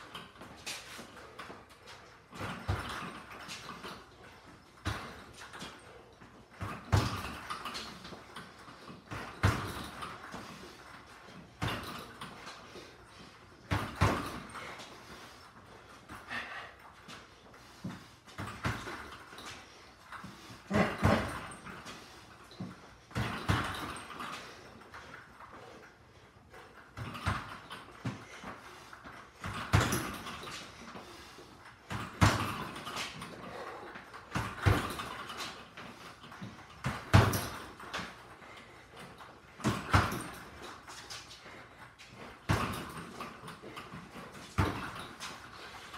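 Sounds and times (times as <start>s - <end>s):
gloves punching a bag: 2.3s - 4.0s, 4.8s - 5.8s, 6.5s - 10.6s, 11.2s - 12.6s, 13.6s - 14.9s, 17.8s - 19.4s, 20.2s - 22.0s, 22.6s - 24.4s, 26.9s - 28.4s, 29.4s - 30.9s, 31.8s - 38.2s, 39.5s - 40.8s, 42.1s - 45.9s
gloved punches on punching bag: 4.8s - 5.3s, 6.6s - 7.7s, 9.1s - 10.1s, 11.6s - 12.2s, 13.7s - 14.7s, 17.9s - 19.1s, 20.7s - 21.7s, 23.1s - 24.1s, 29.4s - 30.4s, 31.9s - 33.0s, 34.3s - 35.3s, 36.8s - 38.1s, 39.6s - 40.6s, 42.4s - 43.2s, 44.6s - 45.1s.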